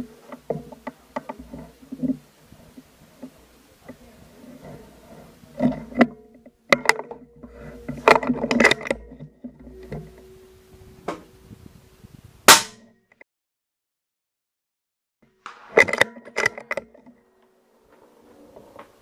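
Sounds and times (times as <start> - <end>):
sharp clicks and knocks: 0.0 - 10.3, 15.5 - 17.2
rifle shot: 12.5 - 12.8.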